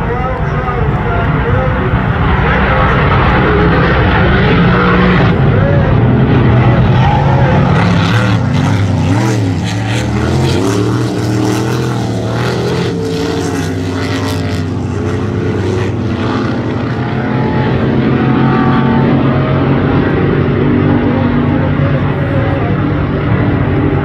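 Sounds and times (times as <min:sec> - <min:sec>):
racing powerboat engines passing: 0:00.0 - 0:24.0.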